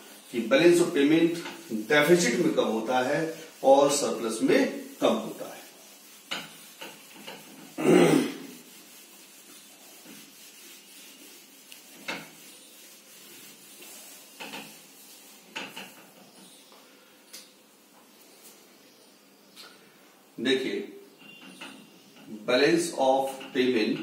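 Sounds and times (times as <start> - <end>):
duster wiping whiteboard: 0.0 - 16.7.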